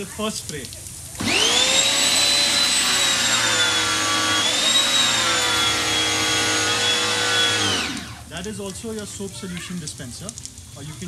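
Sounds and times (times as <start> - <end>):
pressure washer motor whine: 1.2 - 8.4
water spraying hiss: 3.8 - 11.0.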